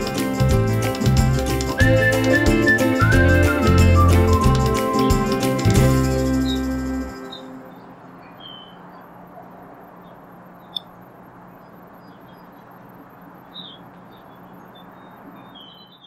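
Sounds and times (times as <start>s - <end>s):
faint low hum: 7.4s - 16.0s
short high bird chirps: 8.2s - 8.8s
sharp click: 10.7s - 11.0s.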